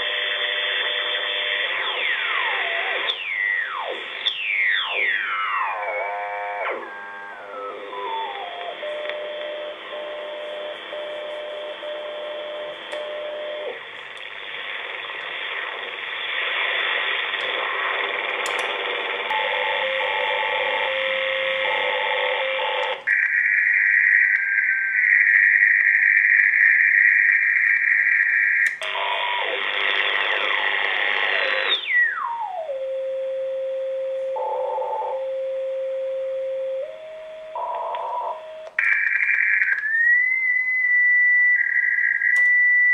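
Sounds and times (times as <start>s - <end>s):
sliding radio tuning whistles: 13.6s - 32.9s, 38.1s - 42.9s
shortwave radio hiss: 13.8s - 19.3s
harsh radio signal: 26.1s - 32.0s.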